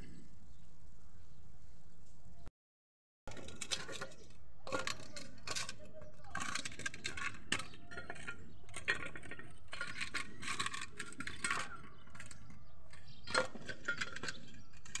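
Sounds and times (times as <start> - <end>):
plastic toys clattering: 3.3 - 15.0.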